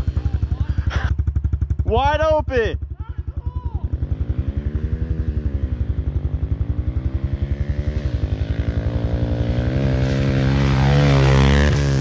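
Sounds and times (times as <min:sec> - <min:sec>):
pit bike engine running: 0:00.0 - 0:12.0.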